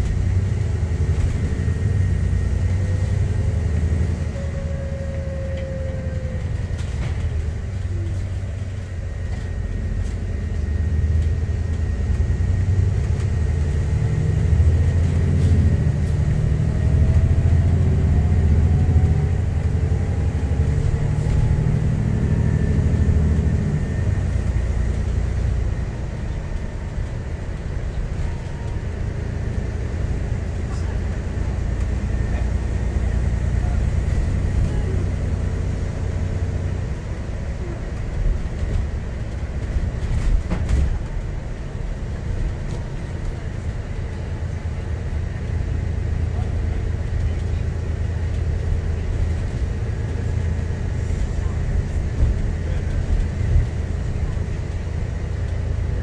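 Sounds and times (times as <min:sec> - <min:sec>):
faint whine: 0:00.0 - 0:12.7
bus engine and road rumble: 0:00.0 - 0:56.0.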